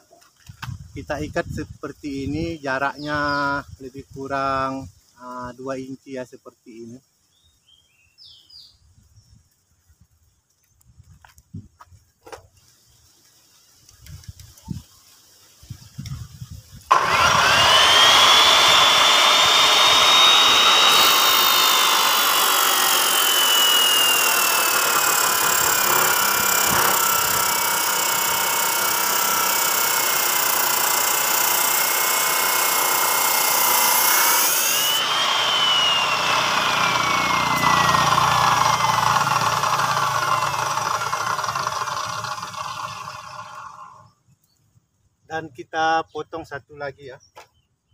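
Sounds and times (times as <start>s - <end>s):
saw grinding through steel wire: 16.9s - 44.0s
cut-off saw motor whine: 16.9s - 44.1s.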